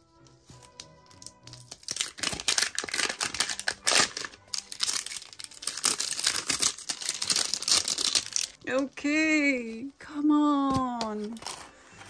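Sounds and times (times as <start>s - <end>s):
plastic packaging crinkling and tearing: 0.7s - 8.6s, 11.0s - 12.0s.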